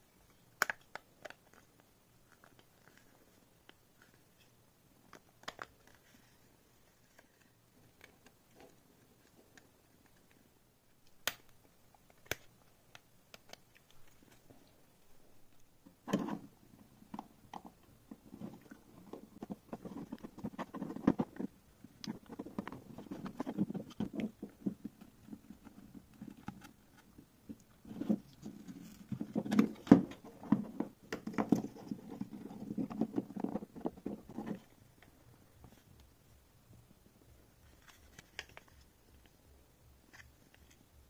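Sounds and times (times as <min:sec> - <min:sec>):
rustling and scraping of plastic: 0:18.1 - 0:27.2.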